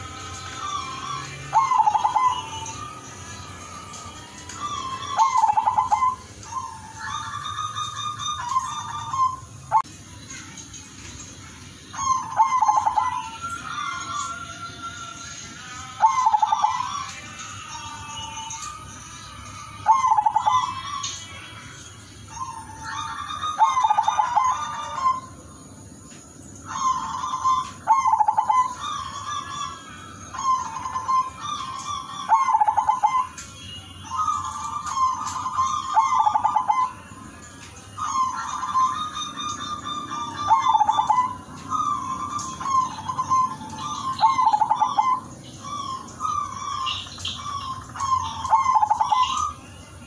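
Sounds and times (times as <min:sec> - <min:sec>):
dove cooing: 0:00.0 - 0:02.9, 0:04.6 - 0:09.8, 0:12.0 - 0:14.3, 0:15.9 - 0:17.1, 0:19.8 - 0:21.0, 0:22.3 - 0:25.4, 0:26.7 - 0:33.4, 0:34.1 - 0:37.1, 0:38.0 - 0:49.6
small birds chirping: 0:00.0 - 0:50.0.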